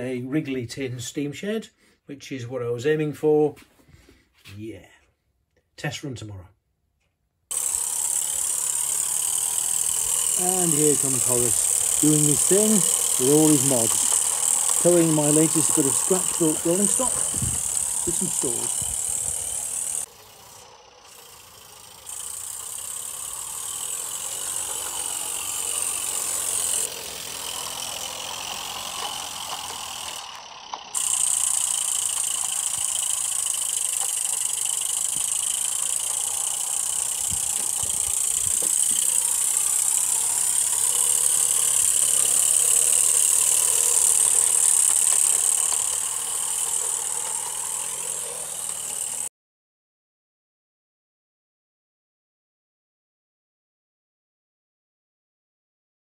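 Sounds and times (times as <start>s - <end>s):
mechanical rattle: 7.5s - 49.3s
steam hissing: 7.5s - 49.3s.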